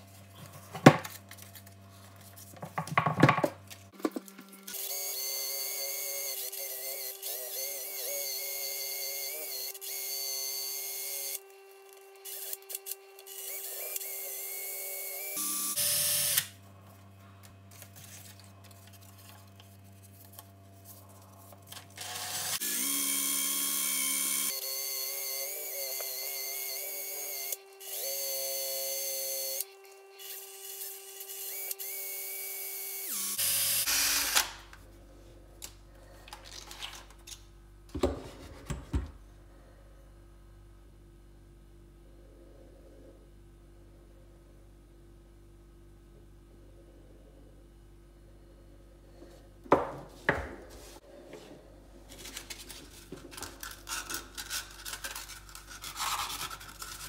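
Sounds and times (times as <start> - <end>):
cordless drill spinning: 12.2 - 16.5, 22.0 - 34.5
sandpaper on wooden handle: 53.6 - 57.0.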